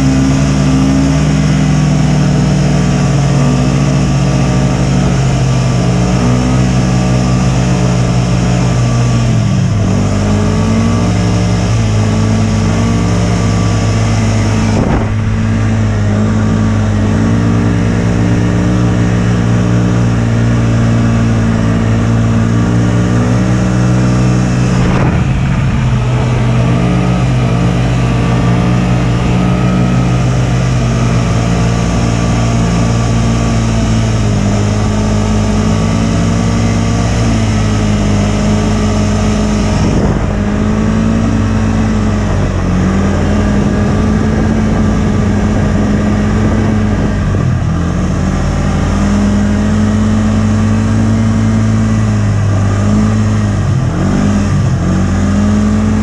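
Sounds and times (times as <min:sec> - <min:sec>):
snowmobile engine running: 0:00.0 - 0:56.0.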